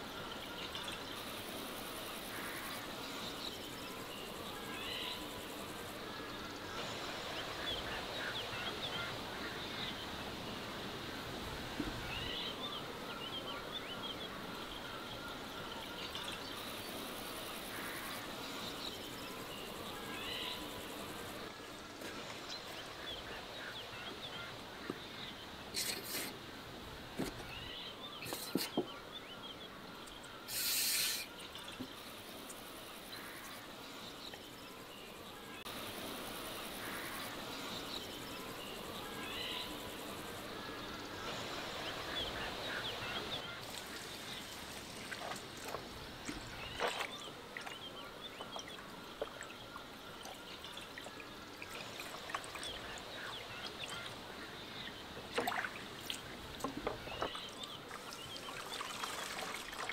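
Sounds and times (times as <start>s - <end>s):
birds chirping: 27.1s - 59.9s
trickling water: 42.0s - 59.9s
hose water splashing into basin: 43.6s - 47.8s, 55.3s - 59.9s.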